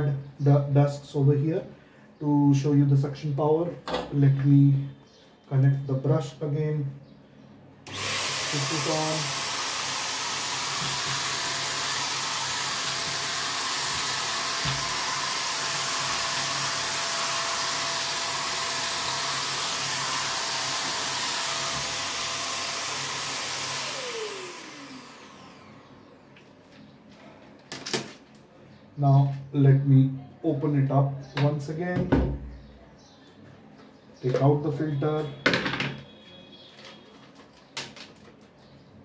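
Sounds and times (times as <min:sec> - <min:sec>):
motor winding down whine: 0:07.9 - 0:25.9
handheld vacuum cleaner running: 0:07.9 - 0:26.0.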